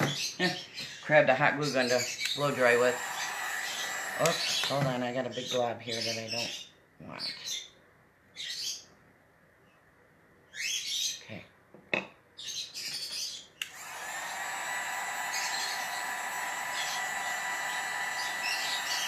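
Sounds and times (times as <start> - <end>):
heat gun blowing with whistle: 1.9 - 4.9, 13.6 - 19.0.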